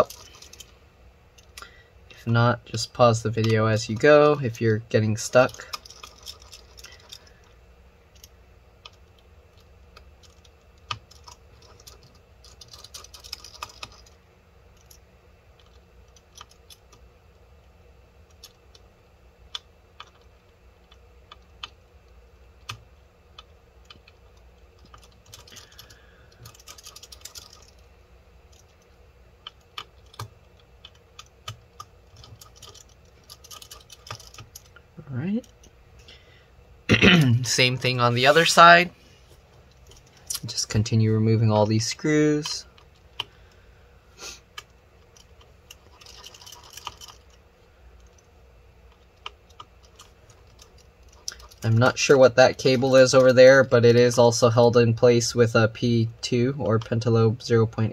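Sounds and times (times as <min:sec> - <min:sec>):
scratchy clicking: 0:28.5 - 0:34.8.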